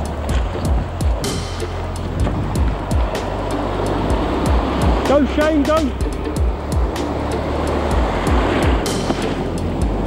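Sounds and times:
surf breaking: 0.0s - 10.0s
electronic dance music: 4.3s - 7.1s.

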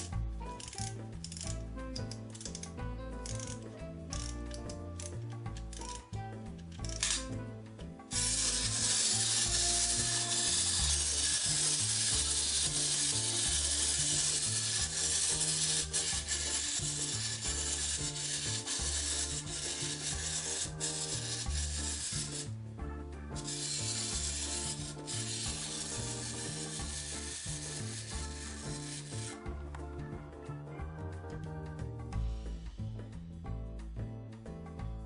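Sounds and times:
clockwork motor whirring: 6.8s - 7.3s, 8.1s - 22.6s, 23.3s - 29.5s.

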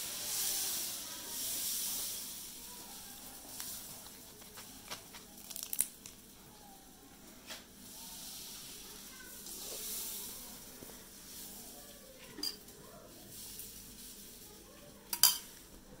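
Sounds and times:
soft rustling handling noise: 1.9s - 16.0s
spoon clinking against steel bowl: 15.1s - 15.5s.

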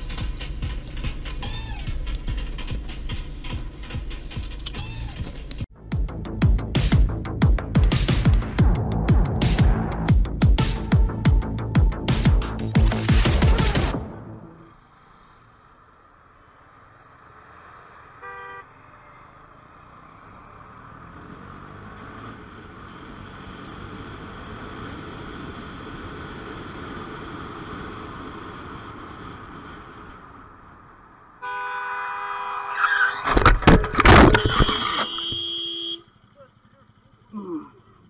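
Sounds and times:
vehicle road and wind noise: 0.0s - 38.0s
car horn: 18.1s - 19.4s, 31.4s - 36.2s
car collision crashing: 33.0s - 35.5s.

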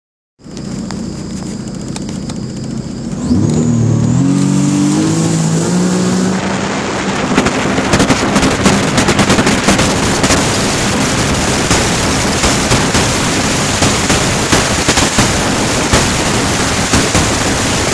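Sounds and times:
watercraft engine accelerating: 0.4s - 17.9s
wind and water noise: 0.4s - 17.9s
wind buffeting on microphone: 4.9s - 17.9s.

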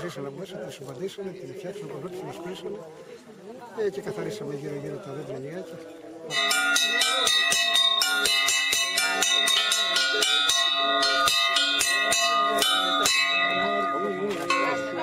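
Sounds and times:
metal bell struck rapidly: 6.3s - 15.0s.

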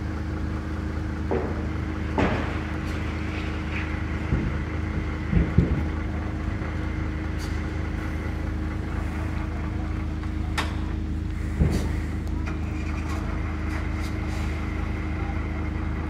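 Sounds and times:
lorry diesel engine running: 0.0s - 16.0s
low thumps: 4.2s - 6.0s.

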